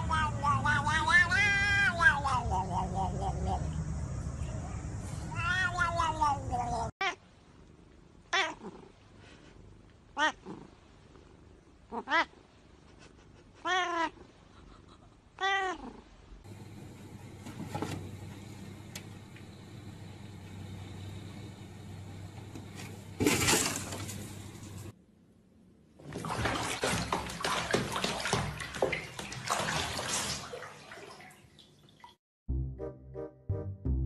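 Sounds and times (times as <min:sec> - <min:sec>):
cat meowing: 0:00.0 - 0:03.2, 0:05.3 - 0:07.2, 0:08.3 - 0:08.8, 0:10.2 - 0:10.6, 0:11.9 - 0:12.4, 0:13.6 - 0:14.2, 0:15.4 - 0:16.0.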